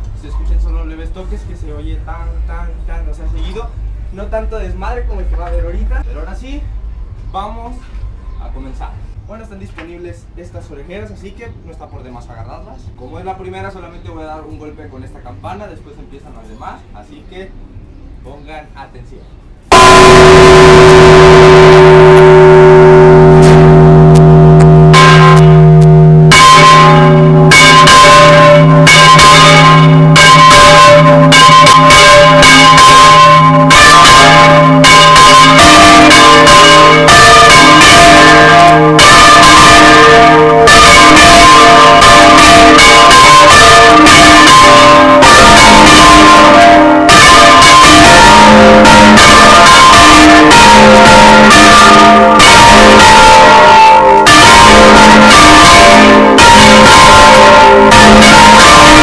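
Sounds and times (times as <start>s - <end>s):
church bells ringing: 19.7s - 59.0s
great bell stroke: 19.7s - 59.0s.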